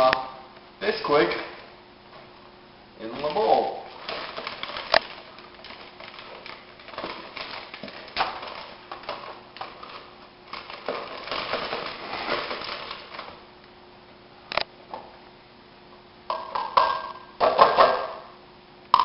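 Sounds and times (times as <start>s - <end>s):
paper bag crinkling: 3.0s - 13.5s.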